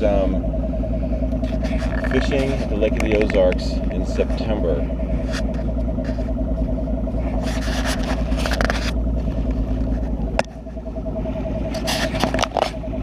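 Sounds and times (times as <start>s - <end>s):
outboard motor running: 0.0s - 13.0s
camera handling rubbing noises: 1.4s - 3.3s, 7.3s - 9.0s.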